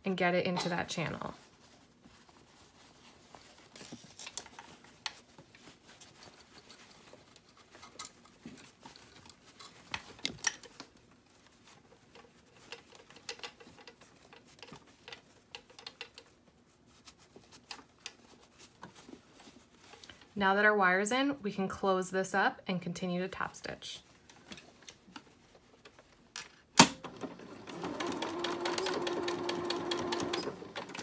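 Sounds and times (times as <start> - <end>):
fabric rustling and scratching: 0.6 - 20.4.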